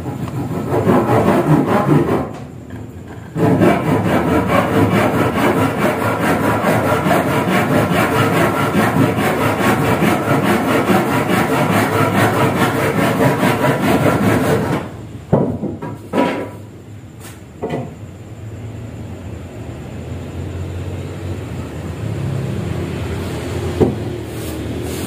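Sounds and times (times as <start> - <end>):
tool scraping wood: 0.0 - 16.6.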